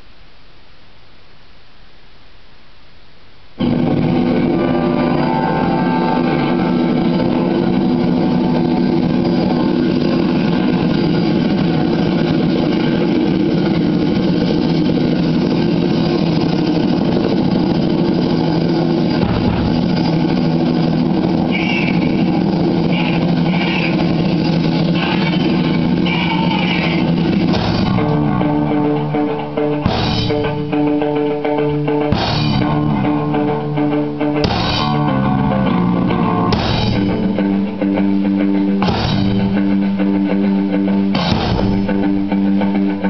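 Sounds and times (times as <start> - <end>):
band music: 3.6 - 43.0
engine-like sound effect: 3.6 - 43.0.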